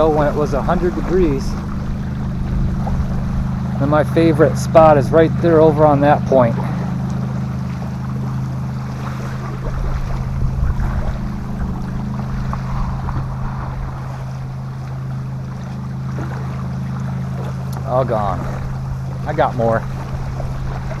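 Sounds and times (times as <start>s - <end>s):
wind gusts on microphone: 0.0s - 4.0s, 8.8s - 15.6s
motorboat engine droning: 0.0s - 21.0s.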